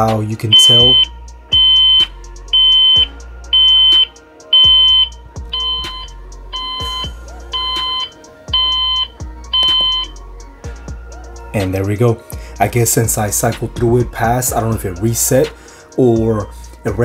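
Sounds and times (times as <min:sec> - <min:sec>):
background music: 0:00.0 - 0:17.0
alarm clock beeping: 0:00.5 - 0:10.2.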